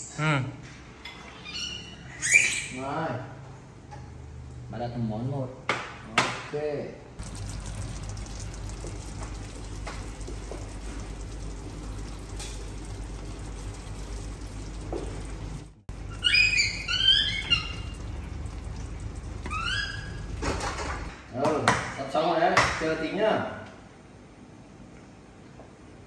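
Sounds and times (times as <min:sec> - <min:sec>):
fish sizzling in a frying pan: 0:07.2 - 0:15.7
high rising squeaks: 0:15.9 - 0:18.2, 0:19.4 - 0:21.1.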